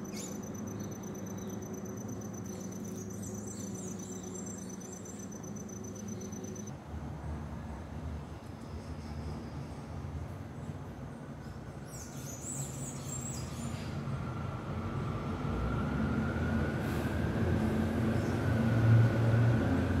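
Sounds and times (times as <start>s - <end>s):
high bird chirps: 0.0s - 6.7s
faint steady whine: 0.0s - 6.8s.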